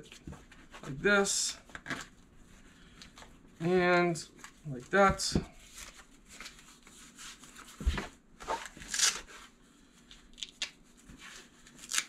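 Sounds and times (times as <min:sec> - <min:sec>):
velcro rasps: 0:08.6 - 0:09.3, 0:11.7 - 0:12.0.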